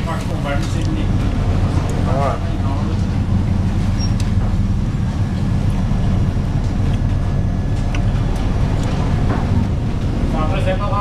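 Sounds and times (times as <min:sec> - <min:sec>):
ship engines droning: 0:00.0 - 0:11.0
wind: 0:00.0 - 0:11.0.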